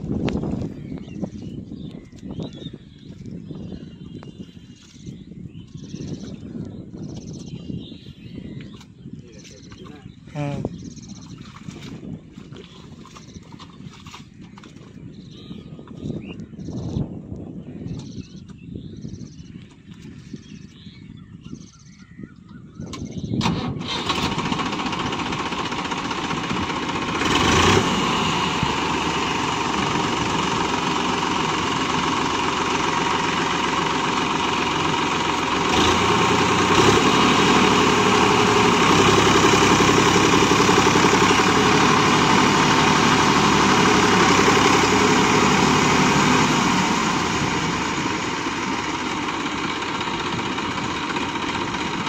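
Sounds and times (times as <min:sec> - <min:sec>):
tractor diesel engine under load: 0:23.4 - 0:52.0.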